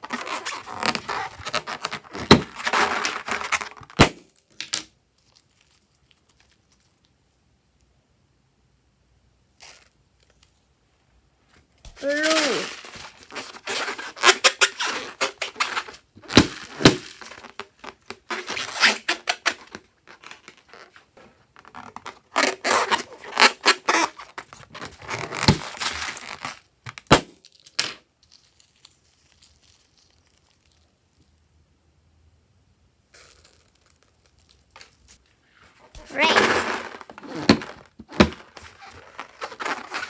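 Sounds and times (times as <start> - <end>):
rubber balloon squeaking and crackling: 0.0 - 4.2, 11.9 - 27.2, 33.1 - 40.0.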